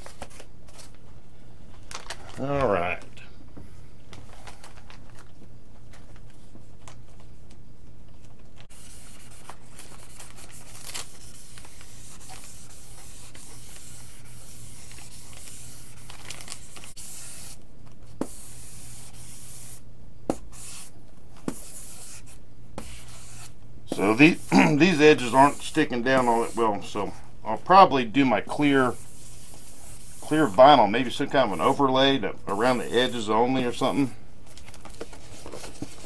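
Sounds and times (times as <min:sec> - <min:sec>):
iron rubbing over decal: 0:08.7 - 0:17.6, 0:21.5 - 0:27.2, 0:28.6 - 0:34.1.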